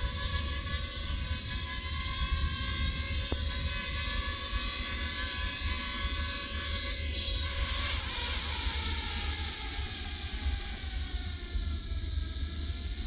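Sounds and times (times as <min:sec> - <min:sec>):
quadcopter propellers whining: 0:00.0 - 0:13.0.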